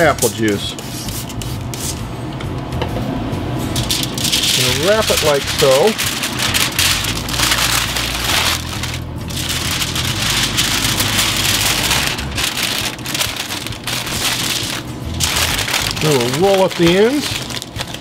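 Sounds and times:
aluminium foil crinkling: 3.8 - 18.0.

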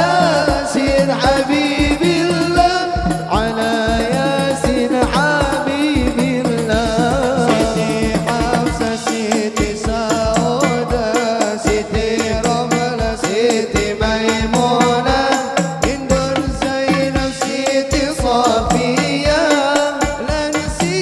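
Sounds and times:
hand drums beating: 0.0 - 21.0
man singing through a microphone: 0.0 - 21.0.

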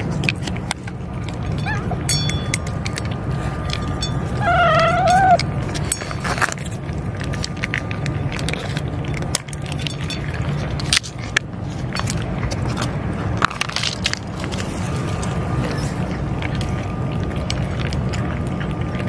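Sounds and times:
cats crunching dry kibble: 0.0 - 19.0
steady low rumble: 0.0 - 19.0
cat meowing: 4.4 - 5.4.

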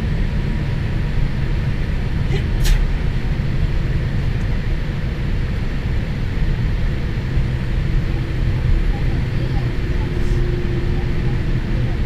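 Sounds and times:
airplane cabin rumble: 0.0 - 12.0
jet engine hiss: 2.1 - 4.2.

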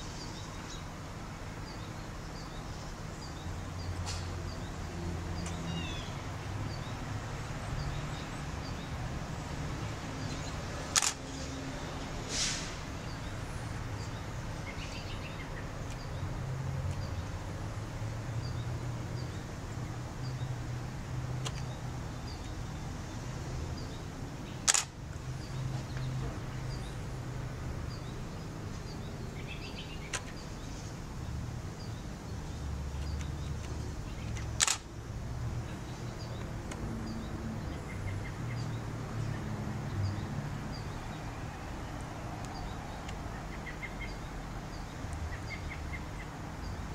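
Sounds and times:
sharp click: 10.9 - 11.2, 24.6 - 25.0, 33.0 - 34.9.

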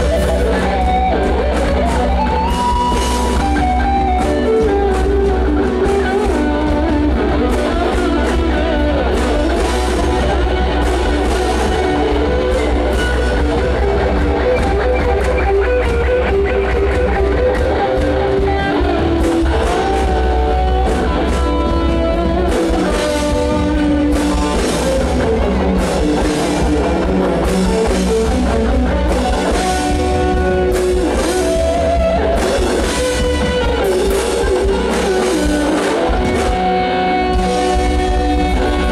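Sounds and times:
electric guitar lead: 0.0 - 38.9
live rock band playing: 0.0 - 38.9.

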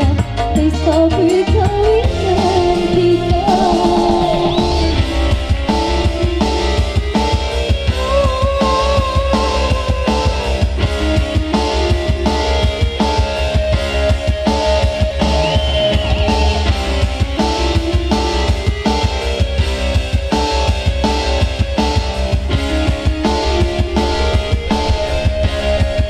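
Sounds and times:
woman singing into microphone: 0.0 - 5.0, 7.9 - 10.8
electronic keyboard playing: 0.8 - 19.4, 20.9 - 26.0
drum beat: 1.5 - 10.0, 22.4 - 26.0.

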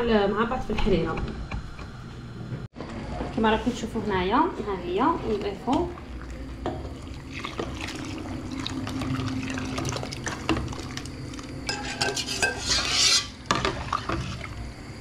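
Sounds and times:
liquid pouring splash: 6.0 - 11.6
metal ladle clinking in pot: 11.7 - 13.8.

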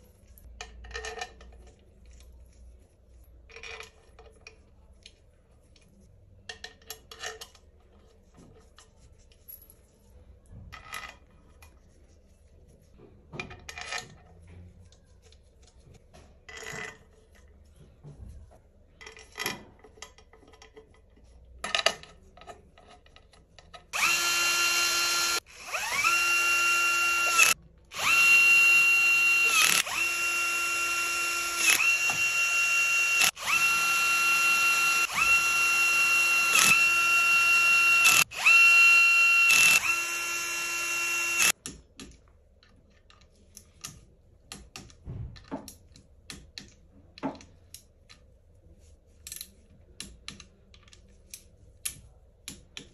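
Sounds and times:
cordless drill whining: 24.0 - 41.5.

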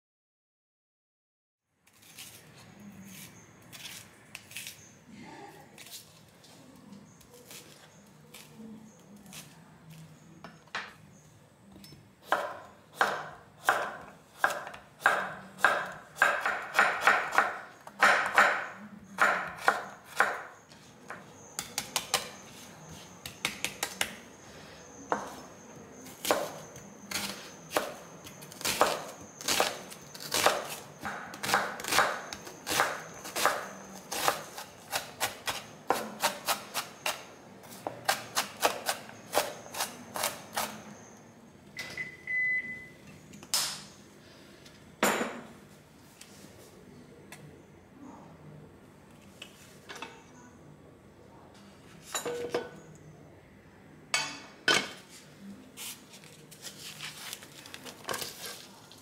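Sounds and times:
knife chopping on wooden board: 12.3 - 20.5, 26.2 - 40.8.

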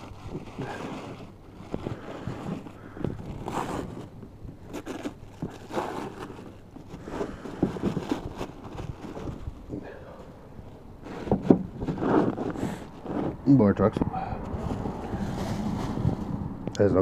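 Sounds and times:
tissue paper rustling: 0.0 - 9.7, 11.0 - 13.4, 14.6 - 16.4
cardboard boxes handled: 0.0 - 13.4
wind rumble on microphone: 11.4 - 17.0.

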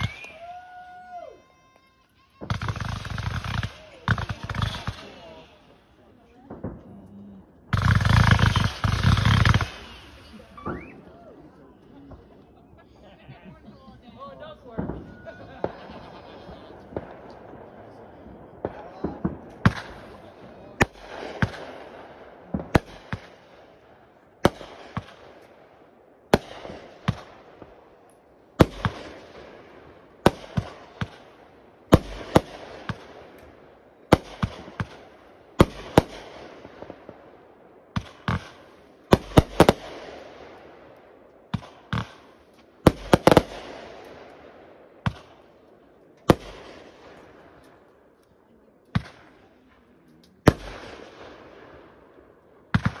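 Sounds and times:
fireworks bangs with hiss: 0.0 - 5.8, 7.7 - 11.0, 26.3 - 27.8, 28.6 - 33.5, 34.1 - 37.3, 37.9 - 40.8, 41.5 - 45.4, 52.7 - 53.0.

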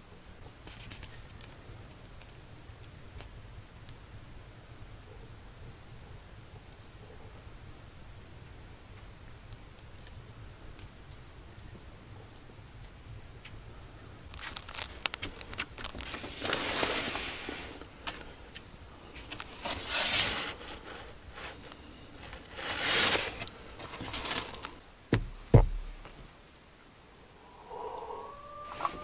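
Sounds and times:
heavy thumps: 25.1 - 26.2.

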